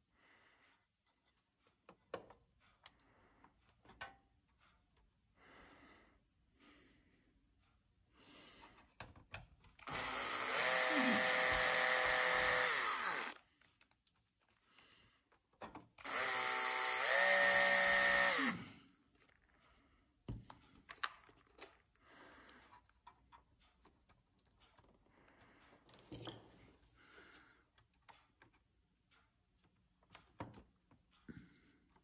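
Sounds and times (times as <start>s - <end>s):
cordless drill motor whine: 9.8s - 13.4s, 16.0s - 18.7s.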